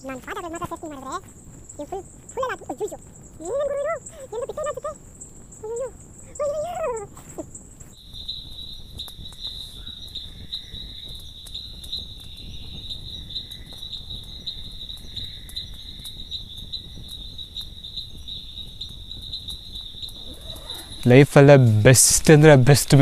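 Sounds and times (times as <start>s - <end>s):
crickets trilling: 0.0s - 23.0s
faint ticks: 0.2s - 21.2s.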